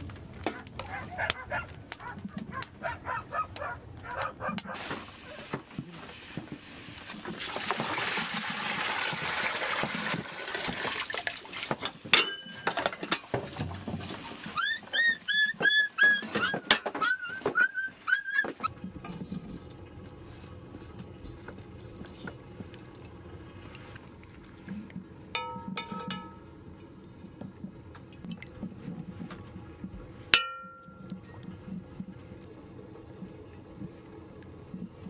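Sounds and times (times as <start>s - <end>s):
dog yelping: 0.5s - 5.4s, 14.6s - 18.7s
metal pots clinking: 11.8s - 13.8s, 25.3s - 26.6s, 30.4s - 31.2s
sharp ringing metal clank: 25.4s - 26.5s, 30.4s - 31.1s.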